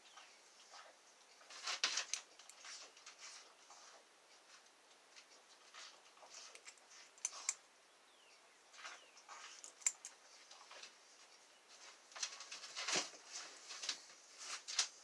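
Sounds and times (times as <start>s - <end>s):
lock pick scraping and clicking: 9.5s - 10.2s.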